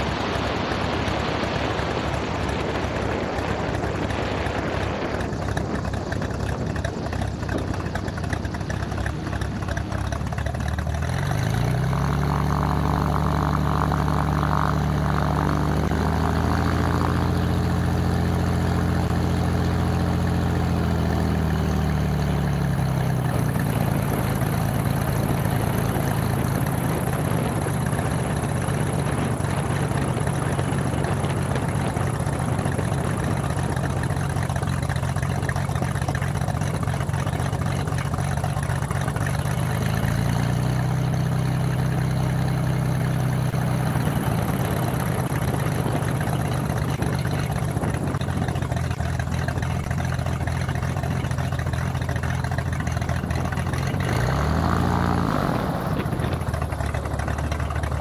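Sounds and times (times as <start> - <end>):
aircraft engine and propeller: 0.0 - 58.0.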